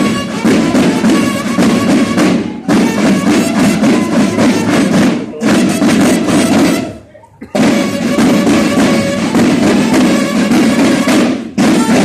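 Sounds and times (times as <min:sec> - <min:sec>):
bugles holding notes: 0:00.0 - 0:12.0
snare drums rattling: 0:00.0 - 0:12.0.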